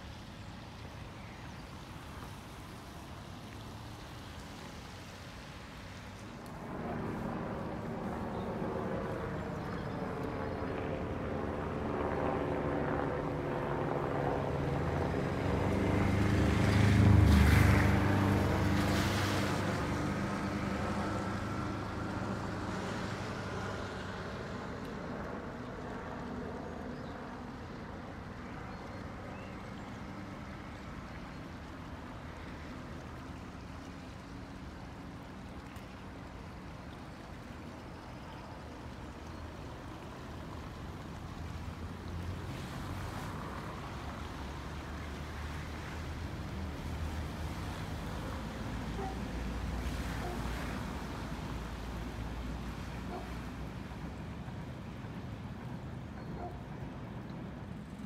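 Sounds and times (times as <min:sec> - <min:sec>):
helicopter engine and rotor: 0:06.6 - 0:15.3.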